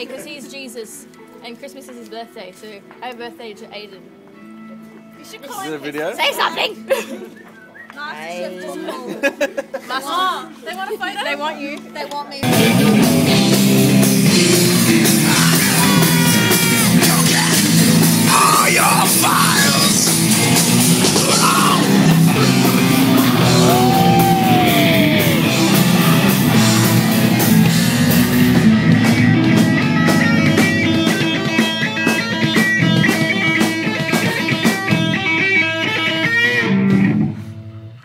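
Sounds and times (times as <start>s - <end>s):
rock band playing: 12.4s - 38.0s
singer yelling: 14.3s - 27.1s.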